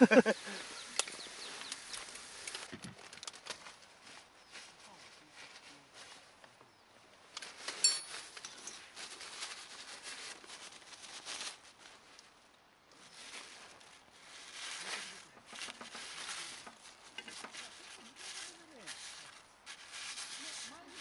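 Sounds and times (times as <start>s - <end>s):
ringing clink: 7.8s - 8.2s
paper towel rubbing in skillet: 13.1s - 21.0s
chopsticks clicking and scraping: 15.4s - 21.0s.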